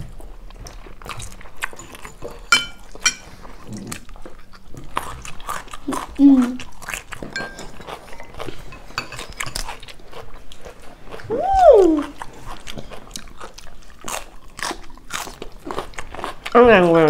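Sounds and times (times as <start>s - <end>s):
chewing crisp lettuce: 0.0s - 17.0s
short rising and falling vocal sound: 11.3s - 12.1s.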